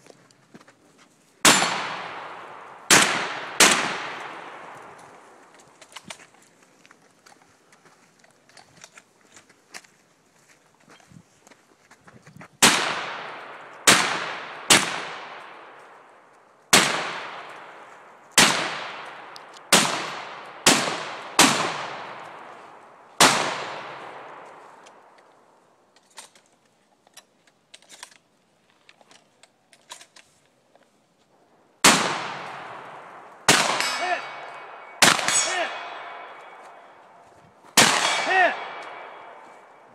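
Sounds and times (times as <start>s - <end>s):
pistol shots echoing: 1.4s - 5.3s, 12.6s - 16.0s, 16.7s - 22.6s, 23.2s - 24.9s, 31.8s - 37.2s, 37.8s - 39.8s.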